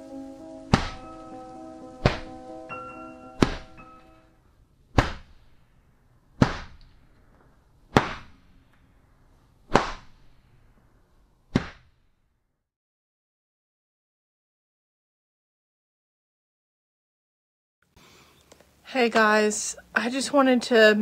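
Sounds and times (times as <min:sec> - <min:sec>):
held music chord: 0:00.0 - 0:04.4.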